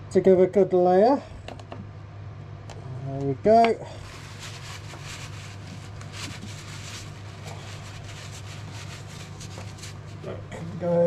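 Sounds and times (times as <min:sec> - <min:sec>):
steady low hum: 0:00.0 - 0:11.0
cloth rustling: 0:04.0 - 0:10.3.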